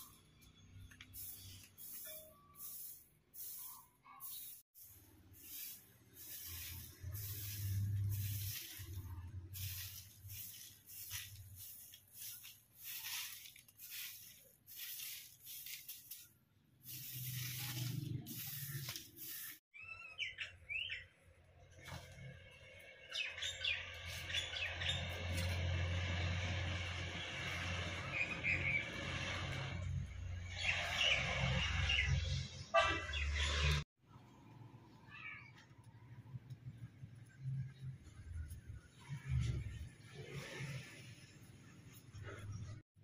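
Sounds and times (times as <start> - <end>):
surges of hissing: 1.1 - 16.2, 16.8 - 19.6.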